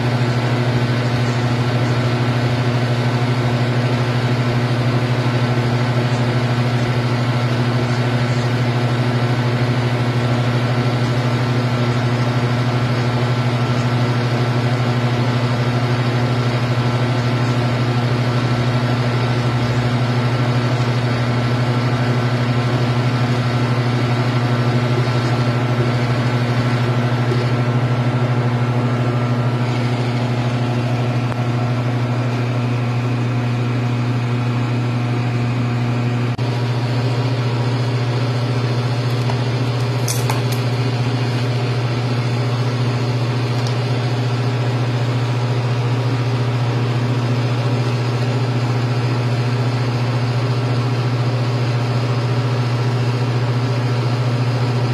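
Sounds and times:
three-d printer mechanical hum: 0:00.0 - 0:40.0.

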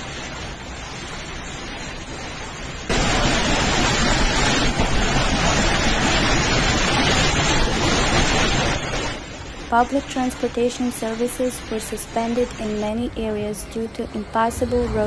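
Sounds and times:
storm wind rushing: 0:01.7 - 0:10.5.

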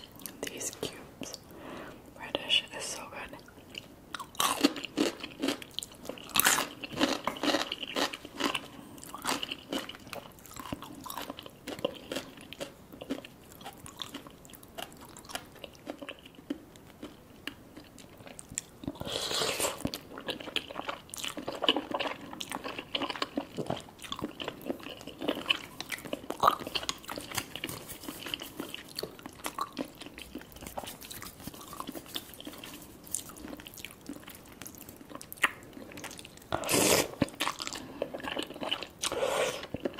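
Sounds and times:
chewing: 0:03.4 - 0:39.9
slurping noodles: 0:19.0 - 0:19.9, 0:36.5 - 0:37.2, 0:39.0 - 0:39.8.

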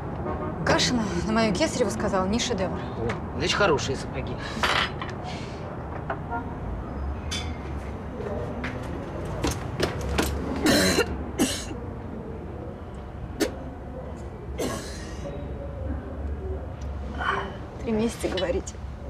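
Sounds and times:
woman coughing and gagging: 0:10.6 - 0:11.7.

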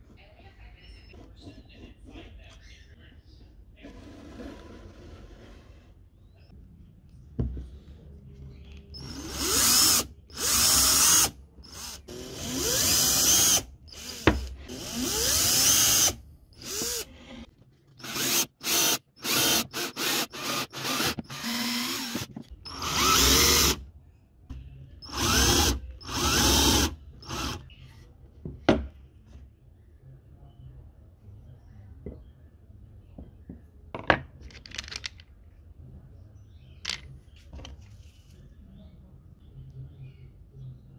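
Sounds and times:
cordless drill motor whine: 0:18.0 - 0:23.8, 0:25.1 - 0:27.6.

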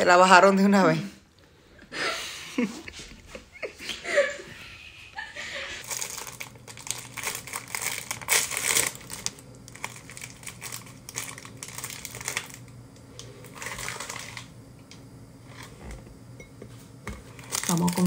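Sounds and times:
plastic wrapper crinkling: 0:05.8 - 0:14.5, 0:17.3 - 0:18.0.

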